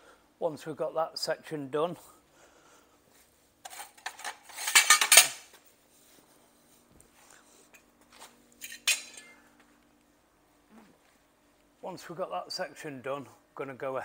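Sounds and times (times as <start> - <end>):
faint steady hum: 0.0 - 14.0
metal pieces clattering: 3.7 - 5.4, 8.6 - 9.3.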